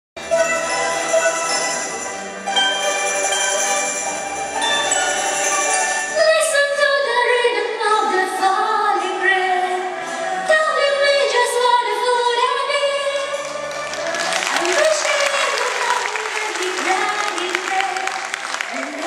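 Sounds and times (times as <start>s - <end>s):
bell-like chimes: 0.3s - 6.2s.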